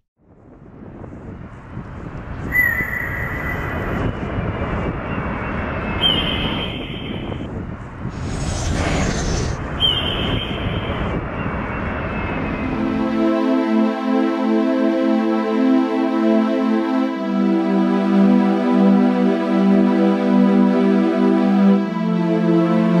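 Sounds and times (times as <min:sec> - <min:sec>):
steady rushing roar: 0:07.5 - 0:13.9.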